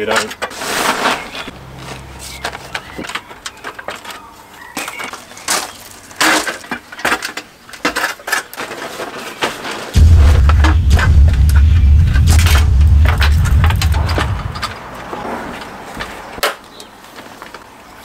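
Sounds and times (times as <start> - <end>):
plastic tarpaulin rustling: 8.5 - 10.0
loud low rumble: 10.0 - 14.8.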